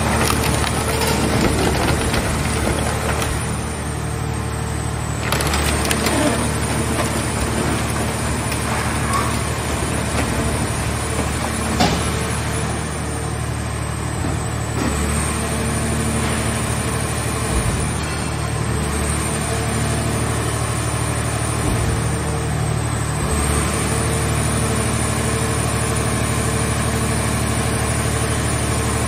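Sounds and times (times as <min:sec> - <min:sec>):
metal cracking and creaking: 0:00.0 - 0:03.9, 0:05.1 - 0:12.7
hydraulic baler droning: 0:00.0 - 0:29.0.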